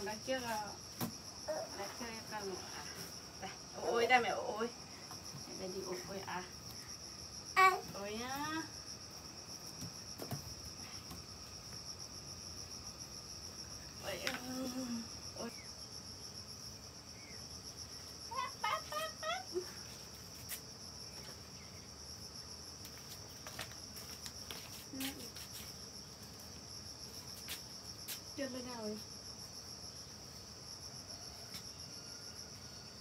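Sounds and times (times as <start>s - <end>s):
high-pitched insect trilling: 12.0s - 23.3s.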